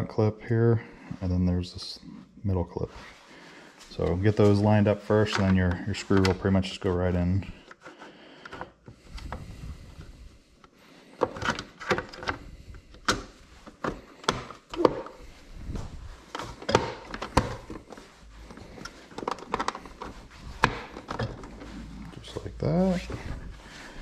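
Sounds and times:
plastic parts clicking together: 18.8 - 21.6.

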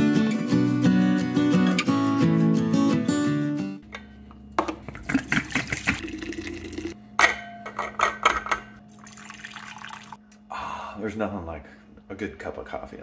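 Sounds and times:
coffee pouring into mug: 5.1 - 7.0, 8.9 - 10.2.

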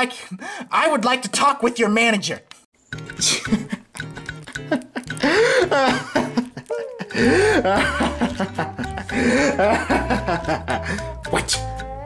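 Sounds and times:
background music: 2.9 - 12.0
cackling laughter: 3.2 - 11.0
bass line: 7.2 - 12.0.

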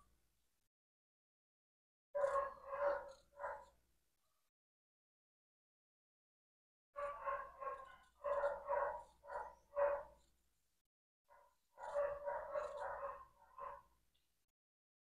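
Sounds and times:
dog barking: 2.2 - 3.8, 7.0 - 10.3, 11.3 - 14.0.

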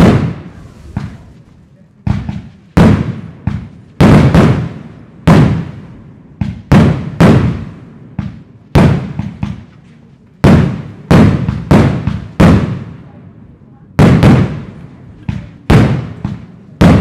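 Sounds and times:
firework shells bursting: 0.0 - 2.5.

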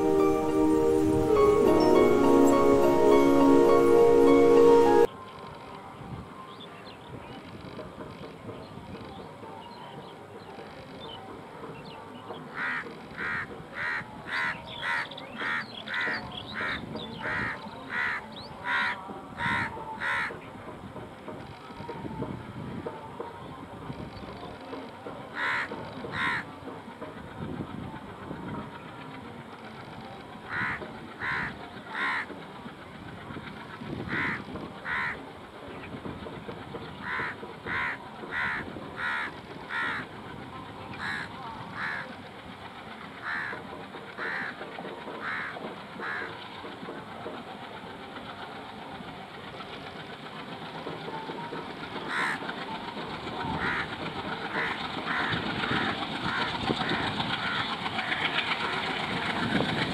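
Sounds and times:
crows cawing: 17.4 - 20.3, 25.4 - 26.4, 30.5 - 32.3, 34.1 - 35.2, 37.0 - 40.0, 41.0 - 42.0, 43.2 - 43.5, 44.2 - 44.5, 45.2 - 46.3, 52.1 - 52.4, 53.6 - 53.9, 54.5 - 58.2
diesel locomotive rumble: 25.0 - 59.9.

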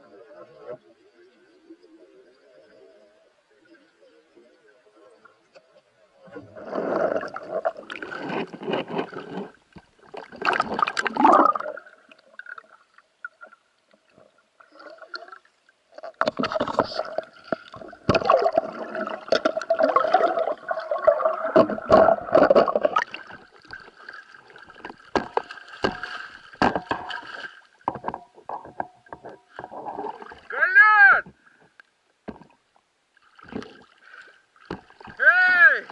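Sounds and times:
underwater sloshing and gurgling: 0.0 - 30.6, 31.3 - 35.2
water splashing: 6.4 - 31.4, 33.2 - 35.9
sharp knocks: 25.2 - 27.3.

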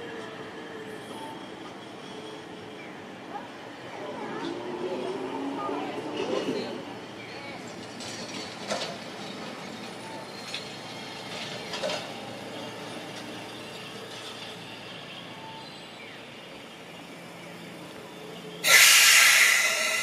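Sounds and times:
tram running noise: 0.0 - 20.0.

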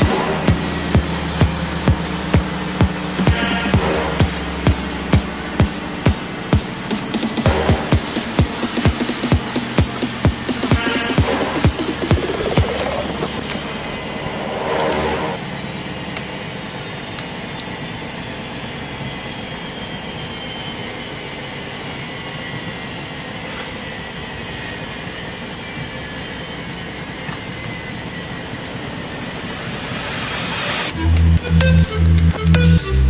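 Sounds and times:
washing machine drum rushing: 0.0 - 14.5
faint falling whine: 0.0 - 16.5.

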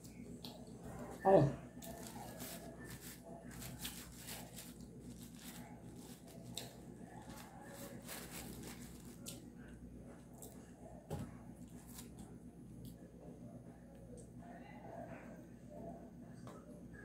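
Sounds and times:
chewing: 0.0 - 1.2, 1.8 - 10.7
low steady hum: 0.0 - 17.0
fork clicks and paper rustling: 1.8 - 9.4.

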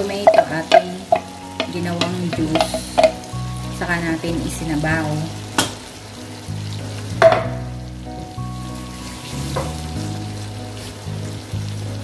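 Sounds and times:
food sizzling in a pot: 0.0 - 12.0
quiet background music: 0.0 - 12.0
spatula knocking on pot: 0.1 - 3.3, 7.2 - 7.6.

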